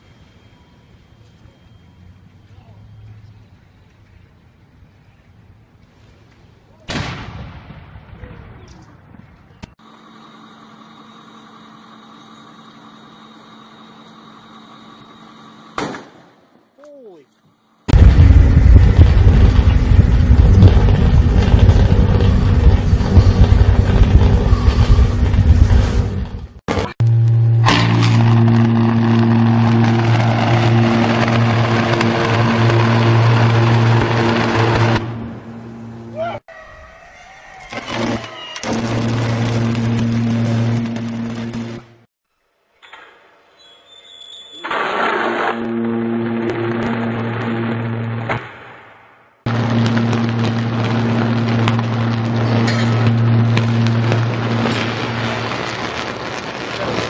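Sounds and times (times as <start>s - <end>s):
electrical arc buzzing and crackling: 17.9s - 35.2s, 37.7s - 42.1s, 49.5s - 57.0s
rumbling: 17.9s - 36.2s, 37.7s - 42.1s, 44.7s - 57.0s
electrical bang on power lines: 27.6s - 35.3s.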